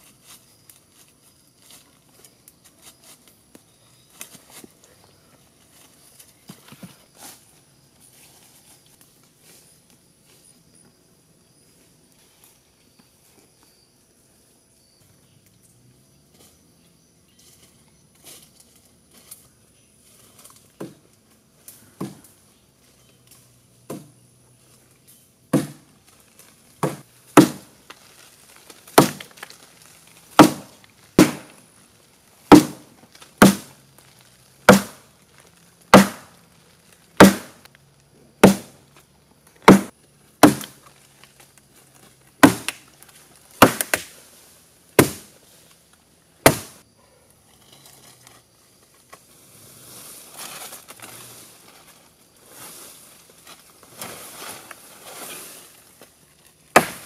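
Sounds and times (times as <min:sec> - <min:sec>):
blade chopping tree branch: 0:25.5 - 0:25.9, 0:26.8 - 0:27.8, 0:28.9 - 0:29.6, 0:30.3 - 0:31.6, 0:32.5 - 0:33.8, 0:34.6 - 0:35.1, 0:35.9 - 0:36.4, 0:37.2 - 0:37.7, 0:38.4 - 0:38.8, 0:39.6 - 0:40.9, 0:42.4 - 0:42.9, 0:43.5 - 0:44.2, 0:45.0 - 0:45.3, 0:46.4 - 0:46.8, 0:56.7 - 0:57.0.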